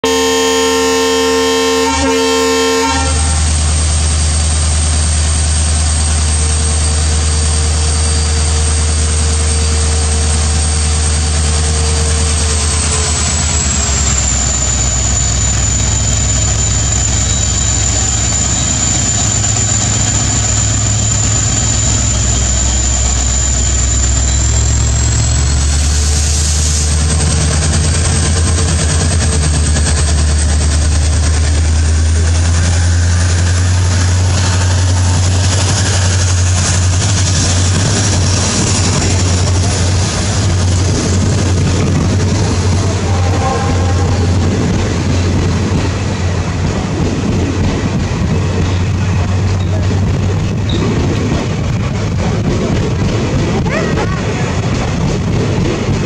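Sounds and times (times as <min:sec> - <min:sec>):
locomotive horn: 0:00.0 - 0:03.6, 0:41.8 - 0:45.8
diesel locomotive engine running: 0:00.0 - 0:56.0.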